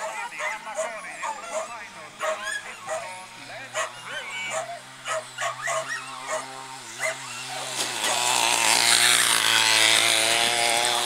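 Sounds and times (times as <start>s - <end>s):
dog barking: 0.0s - 3.1s, 3.7s - 7.2s
small engine running: 0.0s - 11.0s.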